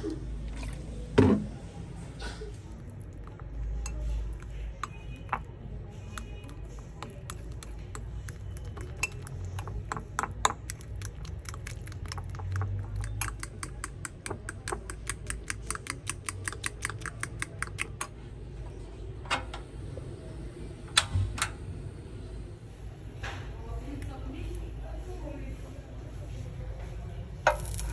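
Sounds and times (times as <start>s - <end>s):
utensil beating batter in glass bowl: 2.7s - 18.2s.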